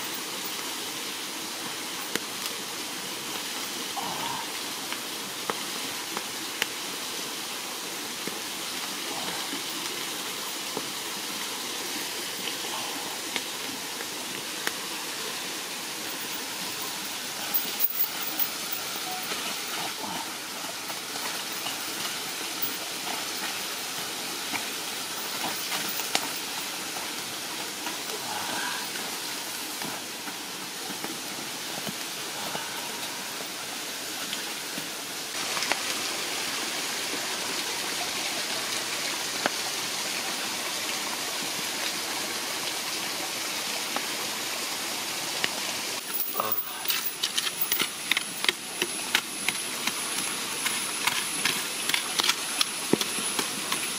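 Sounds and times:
stream water rushing: 0:00.0 - 0:53.9
sharp clicks and crackles: 0:46.1 - 0:53.9.

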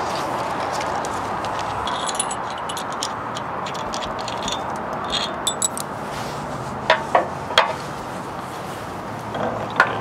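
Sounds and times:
bolts and washers jingling: 0:01.8 - 0:05.9.

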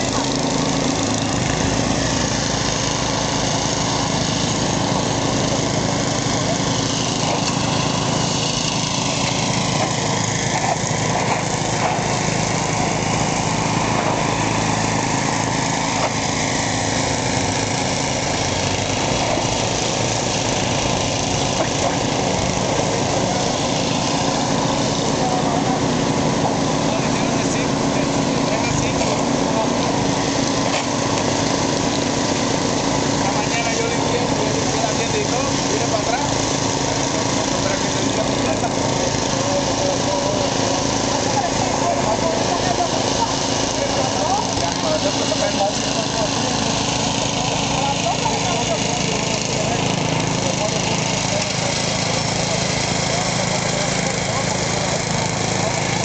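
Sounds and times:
small engine running: 0:00.0 - 0:56.0.

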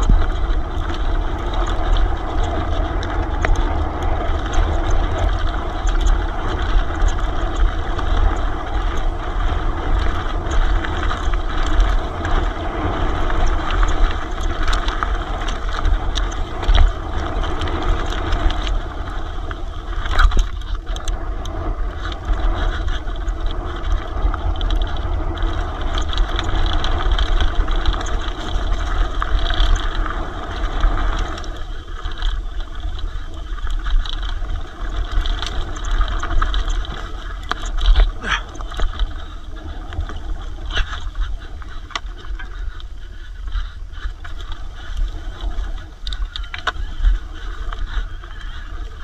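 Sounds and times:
bike tyre noise: 0:00.0 - 0:49.0
wind buffeting microphone: 0:00.0 - 0:49.0.

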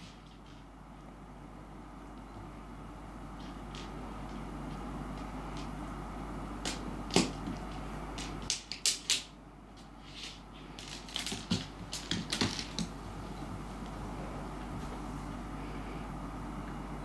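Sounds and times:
seed clicking on wooden floor: 0:10.8 - 0:13.0.

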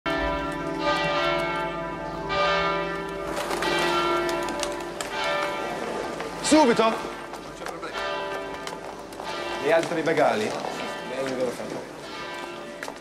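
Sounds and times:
church bells ringing: 0:00.1 - 0:13.0.

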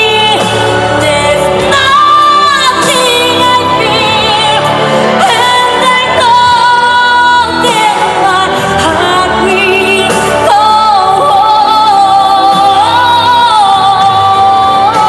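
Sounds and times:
amplified accompaniment: 0:00.0 - 0:15.0
woman singing pop song: 0:00.0 - 0:15.0.

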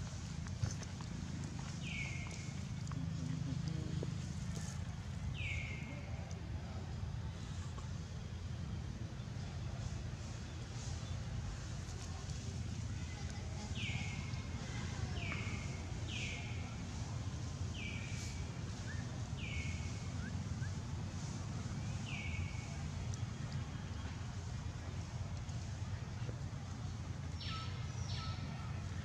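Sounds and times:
low outdoor rumble: 0:00.0 - 0:29.0.

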